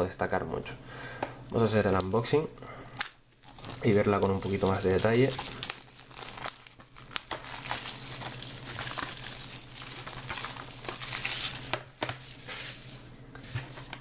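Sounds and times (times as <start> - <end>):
plastic wrap crinkling: 2.9 - 12.8.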